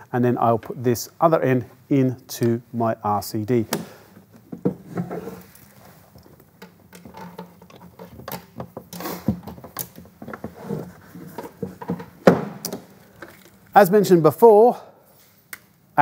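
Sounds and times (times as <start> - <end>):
cable rustling and scraping: 4.1 - 12.2, 12.8 - 13.8.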